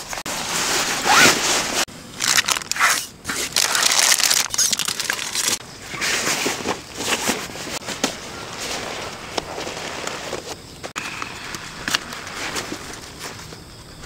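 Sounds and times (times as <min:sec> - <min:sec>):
nylon fabric rustling: 0:00.2 - 0:07.9.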